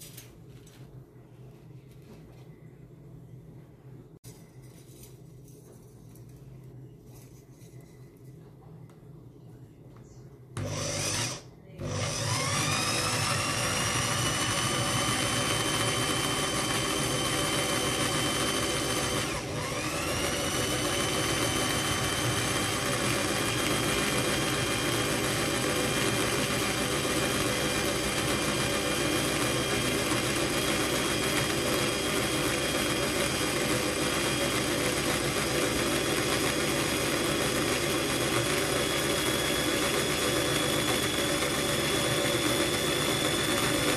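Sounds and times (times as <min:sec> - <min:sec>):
electric drill whining: 0:10.6 - 0:43.9.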